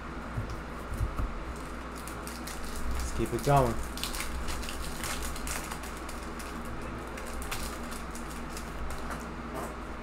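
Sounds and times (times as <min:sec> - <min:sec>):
foil wrapper crinkling and tearing: 0:01.5 - 0:09.2.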